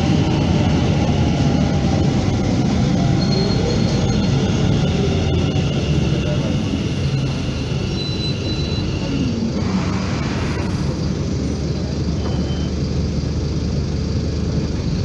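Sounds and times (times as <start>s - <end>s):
road traffic: 0.0s - 15.0s.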